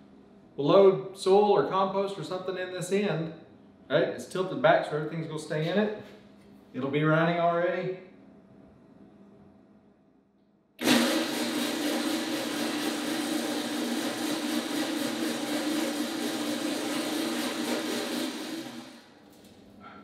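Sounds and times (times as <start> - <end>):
electric motor turning drum: 10.8 - 19.0.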